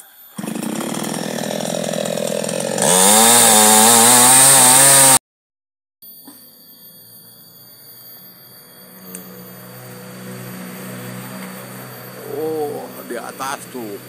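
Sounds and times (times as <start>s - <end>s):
chainsaw cutting wood: 0.0s - 5.2s.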